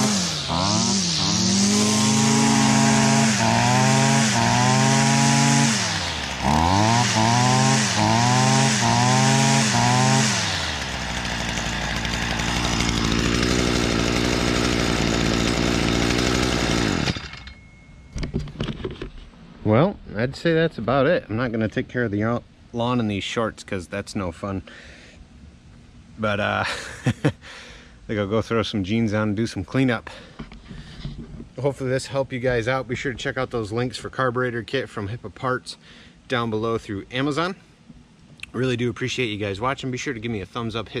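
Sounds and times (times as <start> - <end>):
string trimmer engine revving: 0.0 - 17.5.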